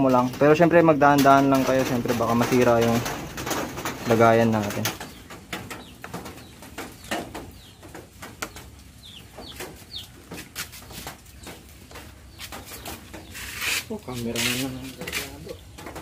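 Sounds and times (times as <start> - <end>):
bird chirps: 4.8 - 16.0.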